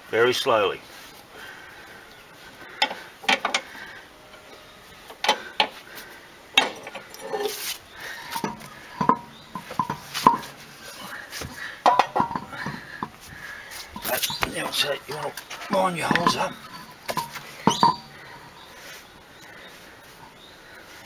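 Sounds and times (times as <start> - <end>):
car jack clinking: 14.0 - 18.6.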